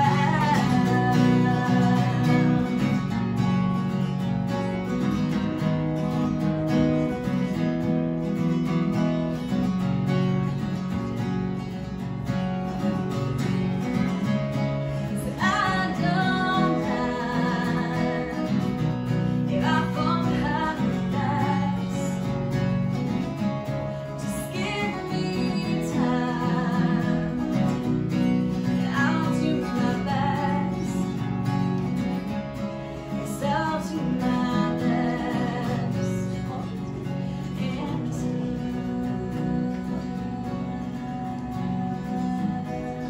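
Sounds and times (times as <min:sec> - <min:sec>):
woman singing with vibrato: 0:00.0 - 0:03.2, 0:14.9 - 0:22.3, 0:24.0 - 0:31.2, 0:33.1 - 0:43.0
strummed acoustic guitar: 0:00.0 - 0:43.0.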